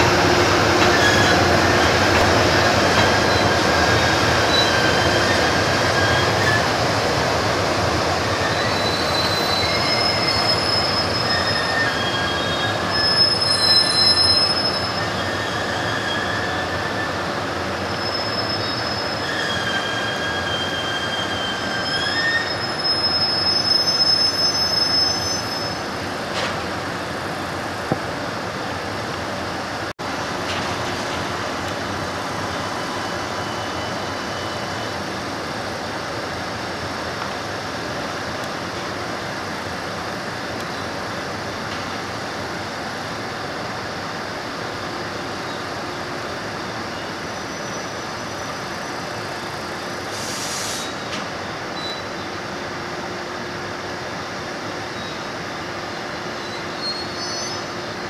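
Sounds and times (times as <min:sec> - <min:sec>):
freight train rumbling: 0:00.0 - 0:58.0
train wheels squealing: 0:00.8 - 0:07.0, 0:08.3 - 0:26.0, 0:32.4 - 0:35.2, 0:44.7 - 0:52.7, 0:54.7 - 0:58.0.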